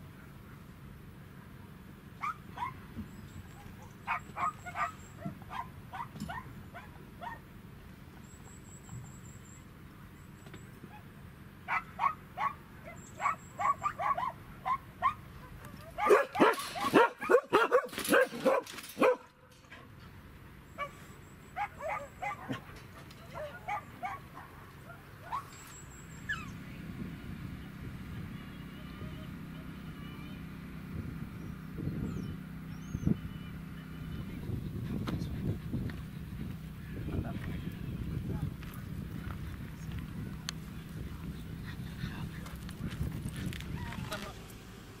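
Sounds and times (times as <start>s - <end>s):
dogs barking: 2.2s - 2.9s, 3.5s - 7.5s, 10.9s - 19.4s, 20.8s - 25.6s.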